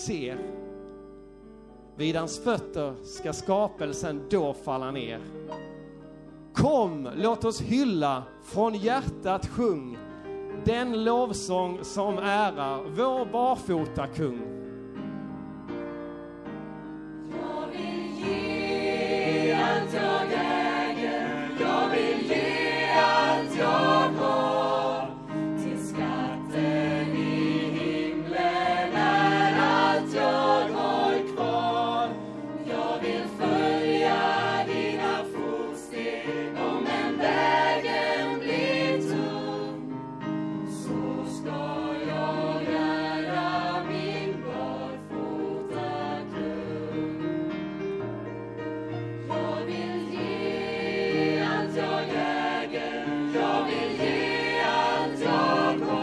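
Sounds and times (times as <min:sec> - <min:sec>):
musical accompaniment: 0:00.0 - 0:56.0
choir singing a worship song: 0:16.4 - 0:48.0, 0:48.9 - 0:56.0.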